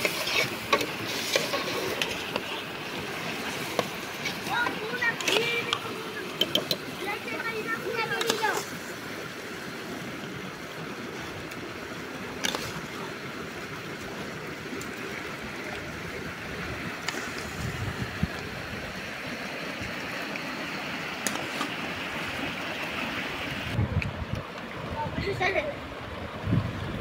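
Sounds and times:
river rushing: 0.0 - 27.0.

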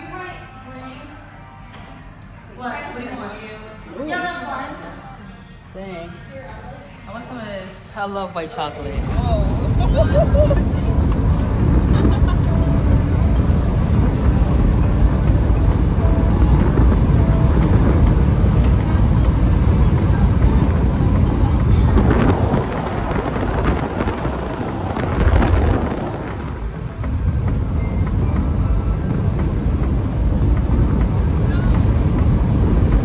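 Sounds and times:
car engine and tyre rumble: 9.0 - 33.0
wind noise: 9.0 - 33.0.

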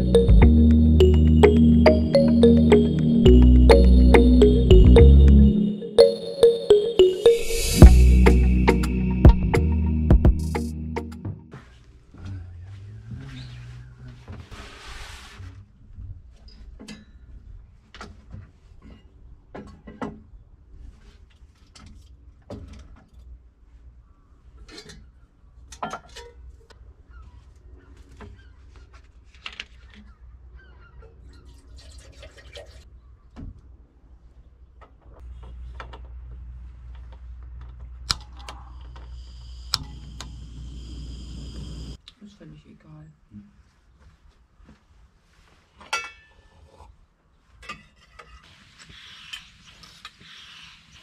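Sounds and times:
gas stove rushing hiss: 39.1 - 42.0
high hiss of gas stove: 39.2 - 42.0.

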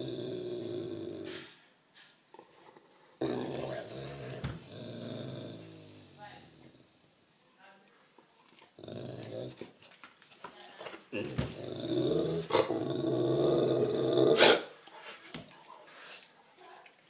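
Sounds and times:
dog growling: 0.0 - 1.5, 3.2 - 6.9, 8.6 - 10.0, 11.1 - 15.8.

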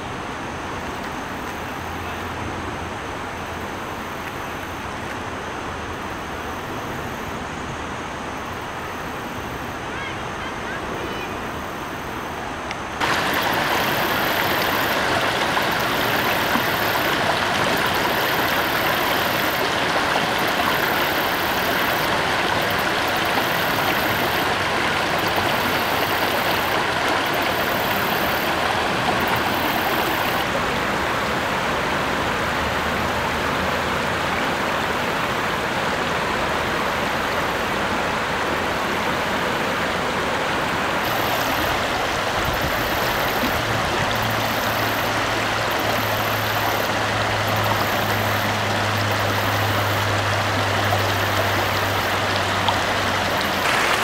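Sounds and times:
water rushing over rocks: 0.0 - 54.0.

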